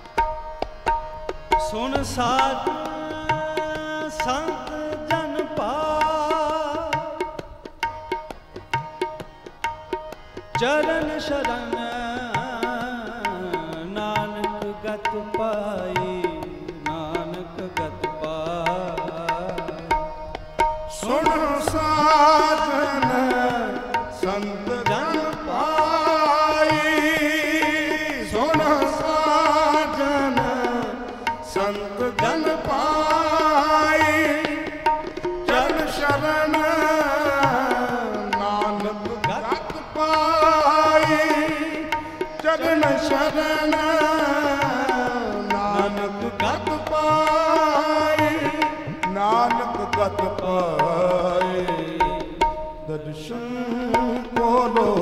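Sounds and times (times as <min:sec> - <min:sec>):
harmonium: 0:00.0 - 0:55.0
tabla strokes: 0:00.0 - 0:55.0
man singing ornamented notes: 0:01.5 - 0:07.4, 0:10.4 - 0:20.1, 0:20.9 - 0:55.0.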